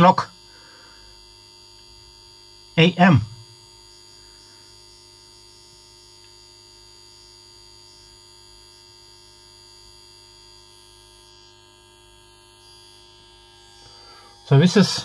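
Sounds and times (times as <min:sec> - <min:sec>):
faint electrical hum: 0:00.0 - 0:15.0
high-pitched whine: 0:11.1 - 0:15.0.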